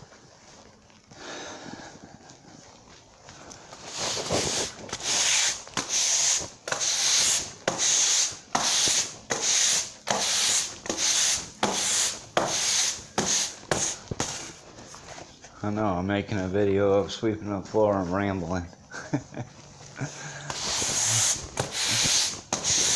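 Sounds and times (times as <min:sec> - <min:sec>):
broom sweeping concrete floor: 0:03.7 - 0:15.6, 0:20.0 - 0:22.9.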